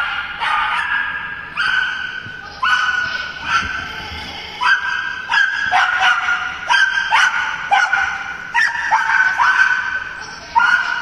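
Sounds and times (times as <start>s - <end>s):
dog barking: 0.0s - 2.0s, 4.6s - 10.0s.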